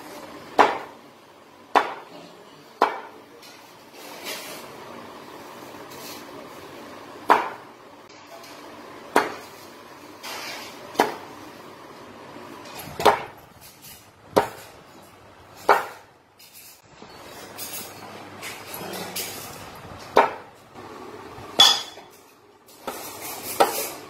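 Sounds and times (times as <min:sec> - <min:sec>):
knife chopping on wooden board: 0:00.6 - 0:00.9, 0:01.7 - 0:02.1, 0:02.8 - 0:03.1, 0:07.3 - 0:07.6, 0:09.1 - 0:09.5, 0:13.0 - 0:13.4, 0:14.4 - 0:14.7, 0:15.6 - 0:16.1.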